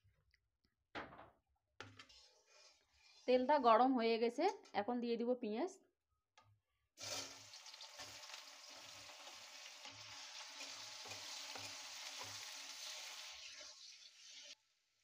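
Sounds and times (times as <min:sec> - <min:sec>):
onions sizzling in hot oil: 0:07.0 - 0:14.6.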